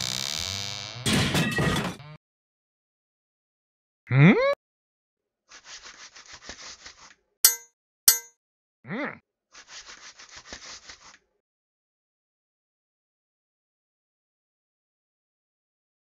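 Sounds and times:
cartoon vocal grunt: 4.1s - 4.6s
metallic clangs with ringing: 7.5s - 8.3s.

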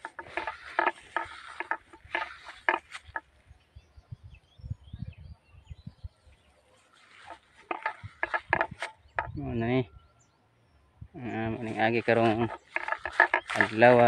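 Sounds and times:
thumping on microphone: 0.0s - 3.2s, 7.3s - 9.4s, 12.2s - 14.0s
footsteps in dry grass: 0.0s - 3.4s, 6.7s - 9.3s, 11.6s - 14.0s
faint bird chirps: 2.3s - 12.1s.

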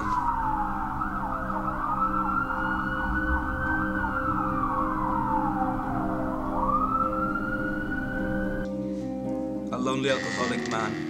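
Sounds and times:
siren wailing: 0.0s - 8.7s.

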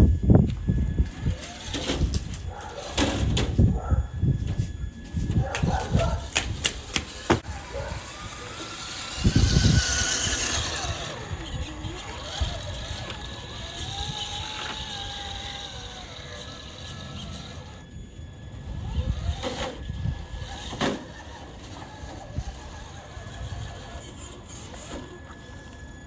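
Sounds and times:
electric motor whining: 0.0s - 26.0s.

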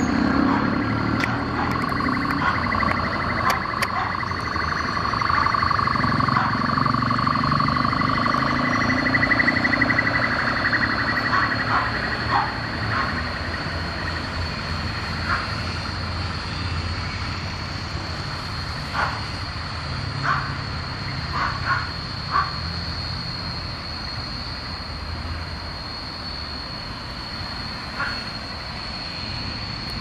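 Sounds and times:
jet engines whining: 0.0s - 18.0s
low aircraft rumble: 0.0s - 20.0s.

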